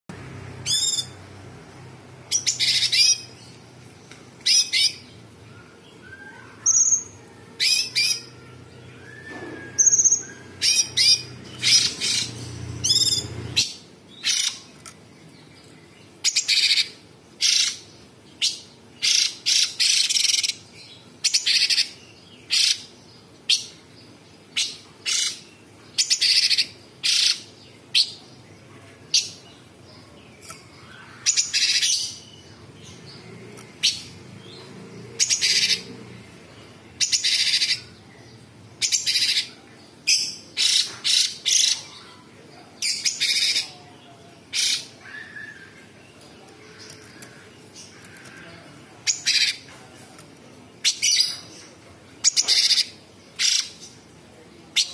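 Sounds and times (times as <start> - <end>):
bird singing high-pitched calls: 0.6 - 1.2, 2.3 - 3.5, 4.4 - 14.7, 16.2 - 22.9, 24.6 - 28.2, 30.4 - 33.2, 37.0 - 38.0, 38.8 - 42.2, 42.8 - 43.8, 44.5 - 46.0, 52.2 - 53.9.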